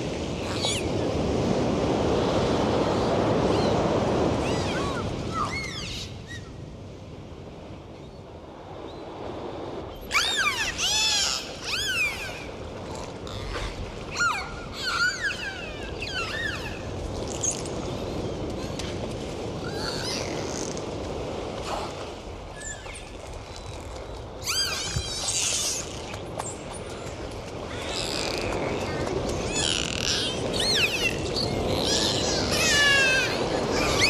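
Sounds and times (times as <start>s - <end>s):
rushing water: 0.0s - 7.3s, 8.0s - 34.0s
dolphins whistling underwater: 10.0s - 12.6s, 13.3s - 17.6s, 24.4s - 26.1s, 29.5s - 34.0s.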